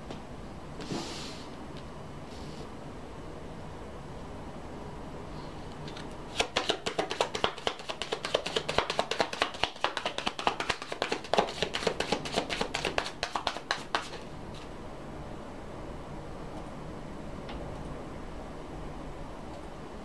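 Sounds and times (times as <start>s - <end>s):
cards being shuffled: 5.9s - 14.7s.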